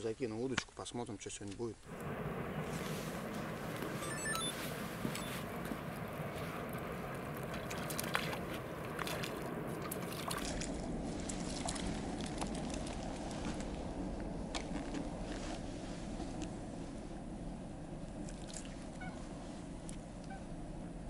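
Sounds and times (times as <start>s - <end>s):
low rumble: 1.9s - 21.0s
water trickling and sloshing: 2.6s - 15.1s, 18.1s - 19.2s.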